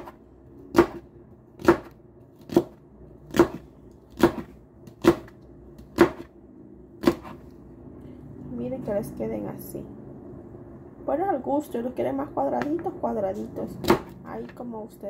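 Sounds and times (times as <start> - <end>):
knife chopping on cutting board: 0.0 - 1.0, 1.6 - 6.3, 7.0 - 7.5.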